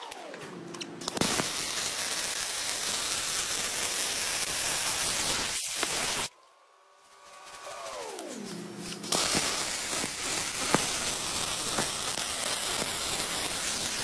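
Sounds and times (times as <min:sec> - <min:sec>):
welding arc crackling hiss: 0:01.0 - 0:06.3, 0:06.9 - 0:14.0
welding pops: 0:01.0 - 0:06.3, 0:09.0 - 0:14.0.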